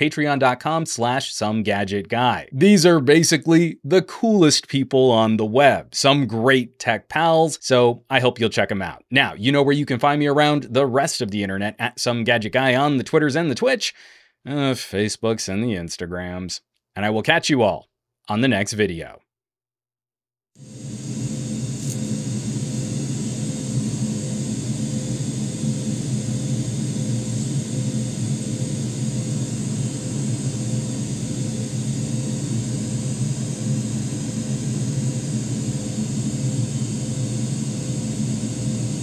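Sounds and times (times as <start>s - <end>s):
faint steady hum: 20.6s - 39.0s.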